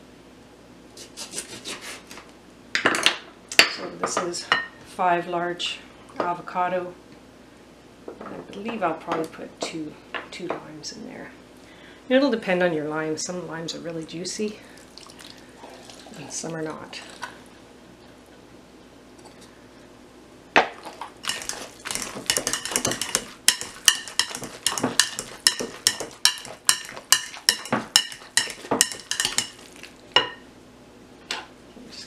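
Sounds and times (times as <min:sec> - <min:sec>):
masher clinking against glass bowl: 0:21.3 - 0:29.6.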